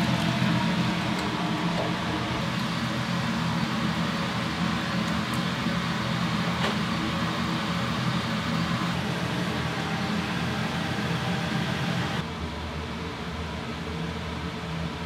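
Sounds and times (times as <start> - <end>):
mechanical hum with rushing hiss: 0.0 - 15.0.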